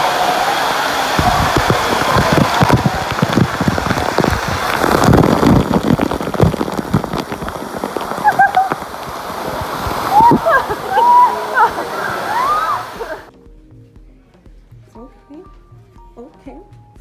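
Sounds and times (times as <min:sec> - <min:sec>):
water splashing and pattering: 0:00.0 - 0:13.3.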